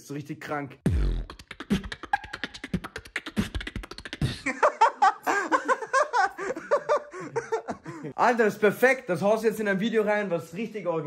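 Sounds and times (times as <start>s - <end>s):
man beatboxing: 0.8s - 4.5s
man laughing: 4.2s - 8.2s.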